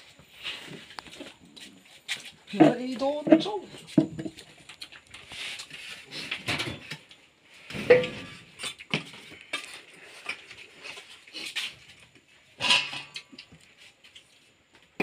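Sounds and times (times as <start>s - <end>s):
steel plates clinking and scraping: 7.7s - 8.8s, 12.6s - 13.3s.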